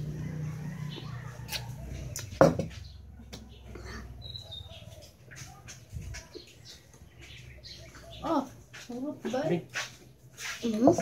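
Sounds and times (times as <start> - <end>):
high bird chirp: 0.8 - 8.9.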